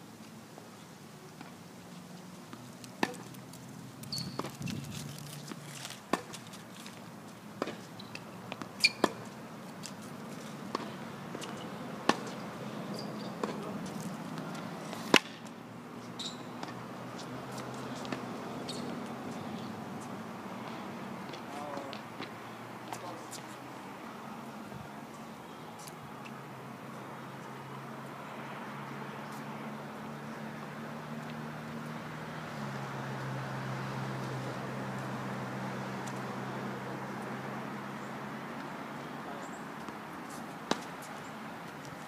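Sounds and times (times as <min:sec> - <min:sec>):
tennis balls struck and bouncing: 0:02.5 - 0:06.5, 0:07.6 - 0:15.5, 0:16.1 - 0:23.5, 0:39.8 - 0:41.1.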